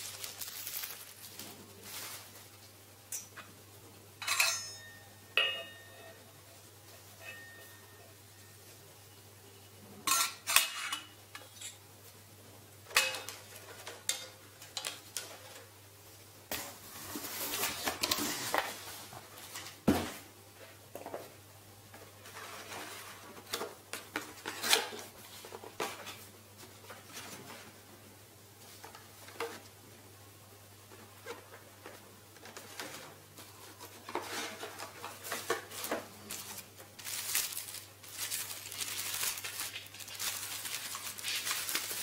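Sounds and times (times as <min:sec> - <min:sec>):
rustling: 0:00.0 - 0:02.8, 0:31.0 - 0:42.0.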